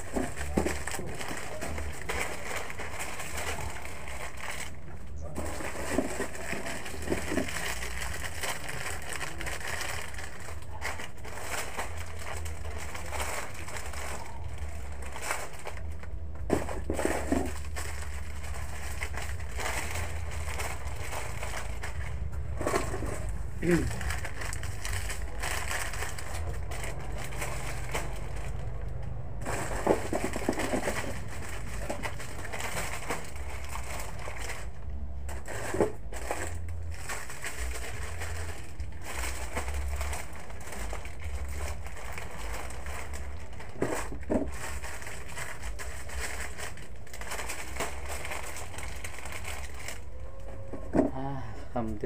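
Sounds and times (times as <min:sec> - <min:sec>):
plastic wrapping rustling and crinkling: 0:00.0 - 0:52.0.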